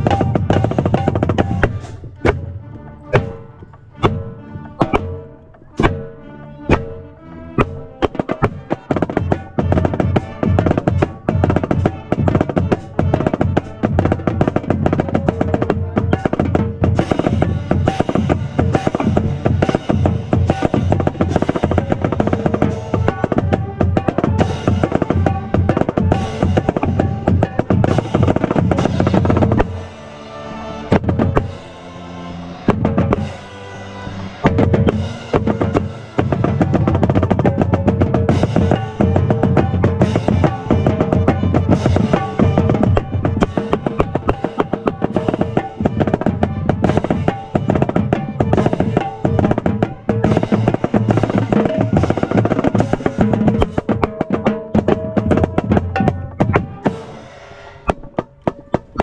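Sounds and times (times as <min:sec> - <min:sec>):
marching snare drum: 0:00.0 - 0:30.2, 0:30.9 - 0:32.0, 0:32.6 - 0:59.0
cymbals crashing: 0:56.8 - 0:57.9.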